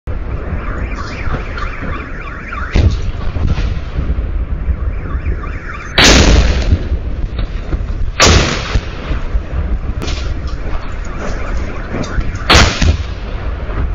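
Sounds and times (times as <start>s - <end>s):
car alarm warbling: 0.4s - 3.4s, 4.5s - 6.2s, 10.2s - 13.3s
artillery shells exploding: 2.7s - 4.8s, 5.8s - 13.9s.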